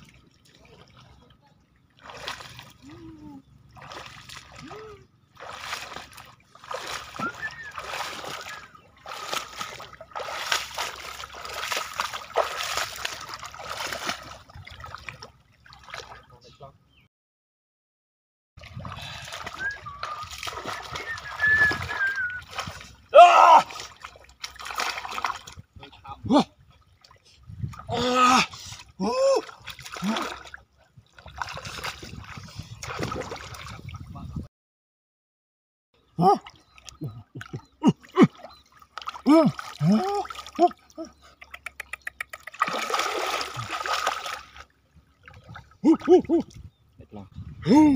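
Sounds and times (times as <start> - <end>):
boots splashing through water: 0.0 - 3.0, 3.7 - 16.4, 18.6 - 25.6, 27.0 - 33.9, 36.4 - 40.8, 42.4 - 46.2.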